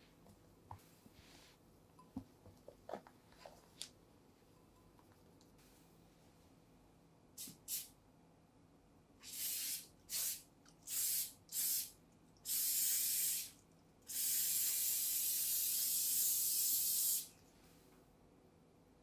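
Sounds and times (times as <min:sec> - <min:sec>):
cooking spray hissing: 0:12.5 - 0:17.3.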